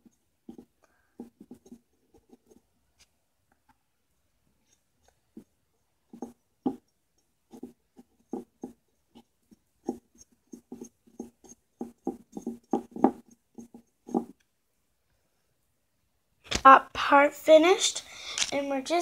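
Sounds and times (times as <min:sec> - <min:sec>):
paintbrush dabbing on ceramic: 0:00.0 - 0:03.2, 0:04.6 - 0:14.5.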